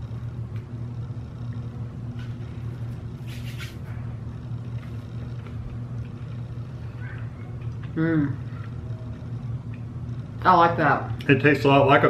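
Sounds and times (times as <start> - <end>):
low room hum: 0.0 - 12.0
scratchy rustle: 3.2 - 3.8.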